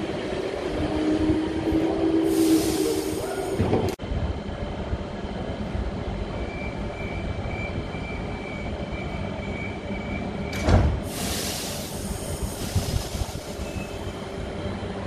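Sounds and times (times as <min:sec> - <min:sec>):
air hiss: 0:02.3 - 0:03.5, 0:11.0 - 0:13.8.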